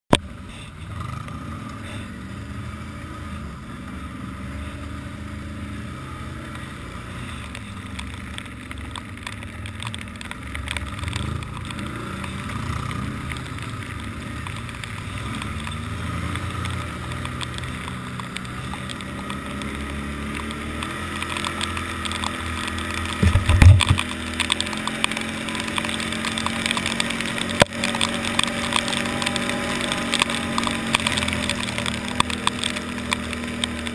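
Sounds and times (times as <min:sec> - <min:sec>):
atv engine revving: 0:00.1 - 0:33.9
wind noise on microphone: 0:23.2 - 0:24.0.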